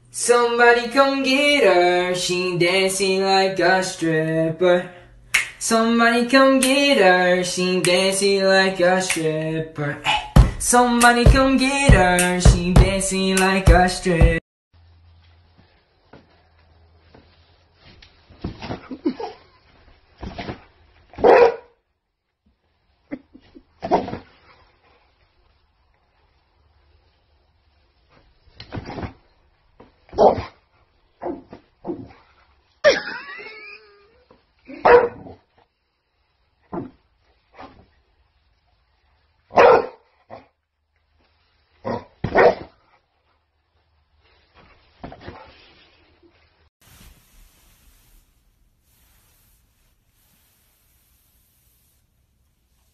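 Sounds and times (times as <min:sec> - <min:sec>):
dog barking: 0:21.2 - 0:21.8, 0:30.1 - 0:30.5, 0:34.7 - 0:35.4, 0:39.5 - 0:40.5, 0:41.9 - 0:42.7.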